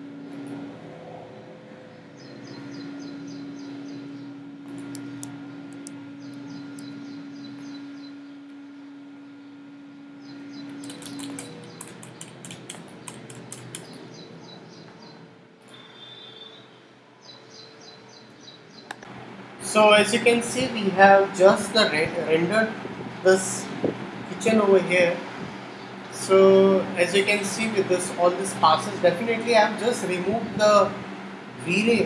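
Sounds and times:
steady low hum: 0.0s - 16.0s, 16.6s - 32.0s
birds trilling: 1.7s - 19.0s
light clicks: 10.6s - 14.0s.

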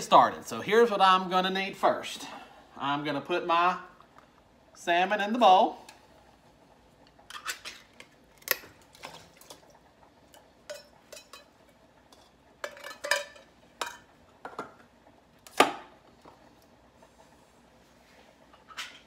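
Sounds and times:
metal can clinking against bowl: 12.6s - 14.7s.

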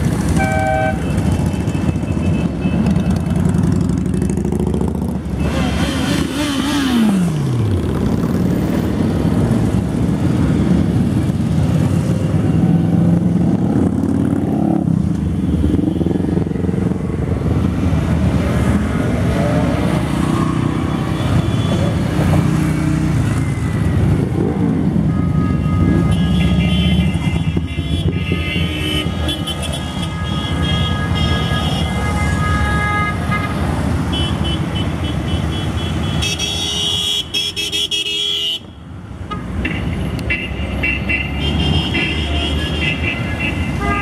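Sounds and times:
car horns honking: 0.3s - 3.3s, 25.0s - 44.0s
motorcycles revving past: 2.8s - 25.1s.

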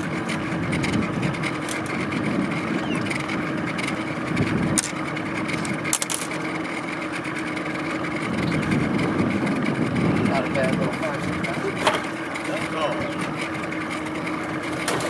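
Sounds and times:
small boat motor humming: 0.0s - 15.0s.

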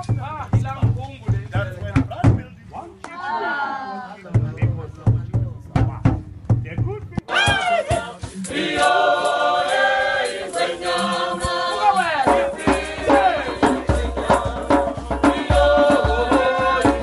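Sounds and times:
voices singing together: 7.2s - 17.0s.

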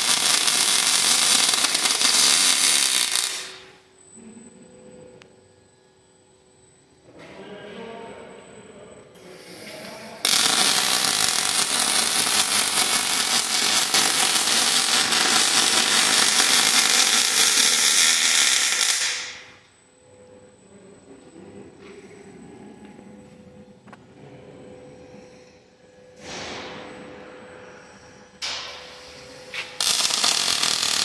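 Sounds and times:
welding arc crackling: 0.0s - 3.8s, 10.2s - 19.6s, 29.6s - 31.0s
quiet machine sound: 0.0s - 31.0s.

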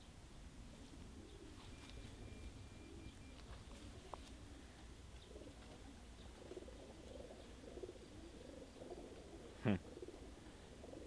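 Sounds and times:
pigeons cooing: 0.0s - 11.0s.

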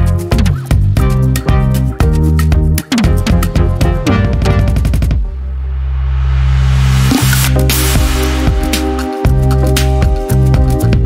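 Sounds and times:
rush of noise: 5.4s - 9.0s
sharply struck repeated notes: 7.0s - 10.8s.

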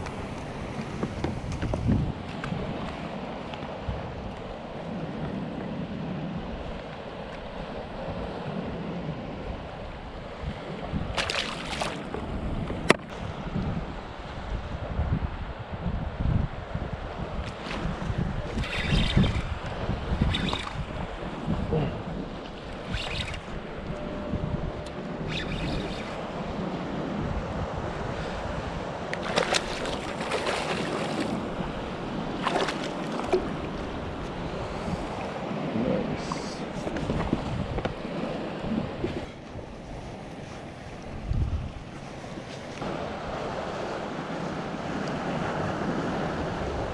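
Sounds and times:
wind: 0.0s - 46.9s
fish splashing into water: 11.2s - 12.1s, 29.2s - 31.7s, 32.4s - 33.9s
water lapping: 11.2s - 12.8s, 17.3s - 41.2s
fish splashing at surface: 29.2s - 31.4s
lapping water: 29.2s - 31.7s, 32.4s - 37.4s.

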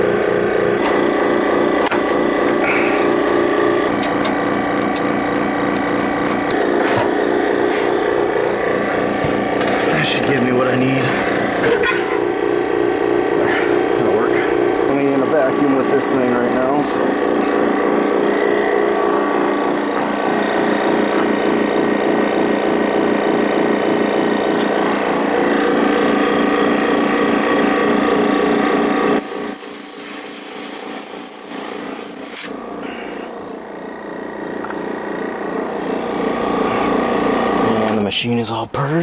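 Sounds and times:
compressor running with rapid pulsing: 0.0s - 39.0s
loud hiss of purging: 28.8s - 33.4s.

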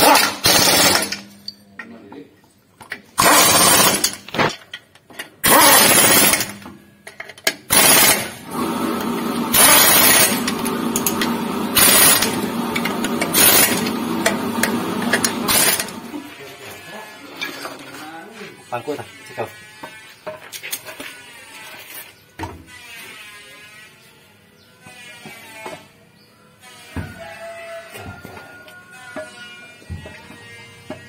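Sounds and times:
impact wrench bursts: 0.0s - 1.4s, 3.2s - 4.6s, 5.4s - 6.7s, 7.5s - 16.2s.

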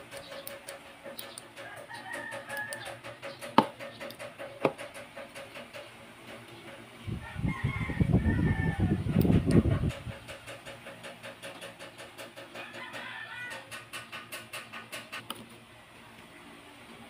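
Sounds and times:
sharp metallic clicks: 0.0s - 6.8s
rooster crowing: 1.6s - 3.0s, 7.1s - 9.1s, 12.6s - 13.8s.

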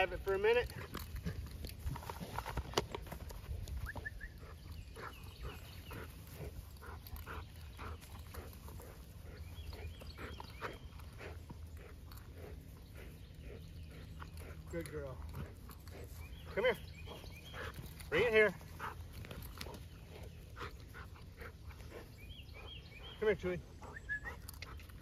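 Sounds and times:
dog panting: 3.5s - 25.0s.

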